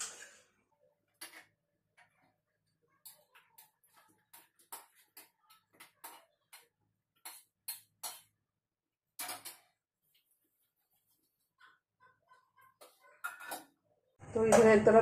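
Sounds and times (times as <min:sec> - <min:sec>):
spatula scraping metal pan: 0:10.4 - 0:13.8.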